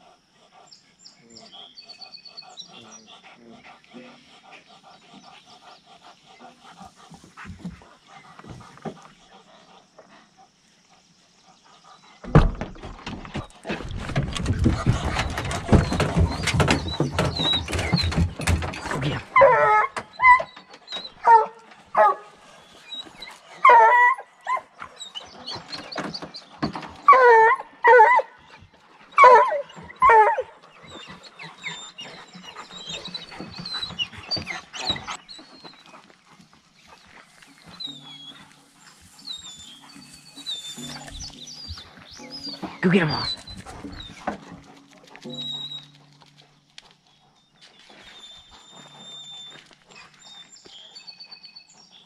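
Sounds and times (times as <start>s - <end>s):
hound barking: 19.1s - 20.5s, 21.2s - 22.4s, 23.6s - 24.8s, 27.1s - 28.4s, 29.2s - 30.6s.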